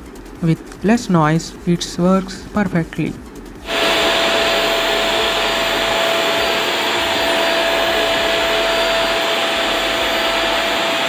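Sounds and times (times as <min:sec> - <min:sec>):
vacuum cleaner running: 0:03.6 - 0:11.0.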